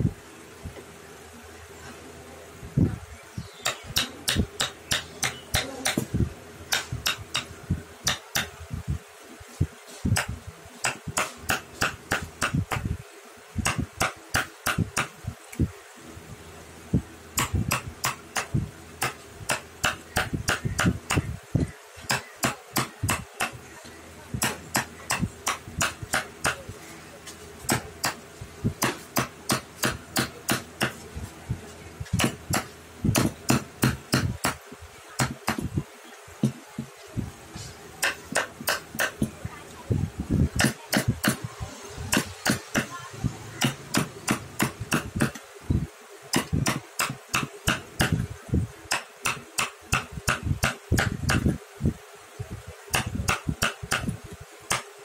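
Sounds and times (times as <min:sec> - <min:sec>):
mallet tapping chisel into wood: 0:43.6 - 0:45.4, 0:46.3 - 0:48.2, 0:48.9 - 0:51.5.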